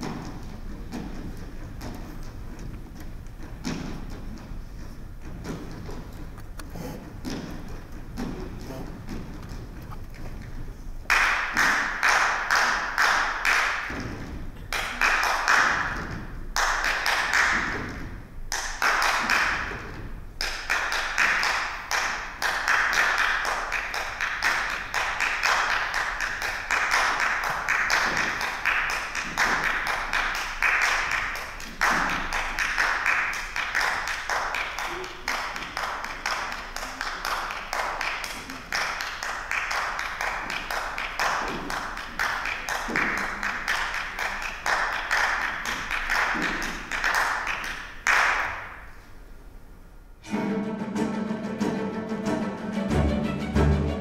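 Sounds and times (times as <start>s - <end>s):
hands clapping in fast rhythm: 11.0s - 49.0s.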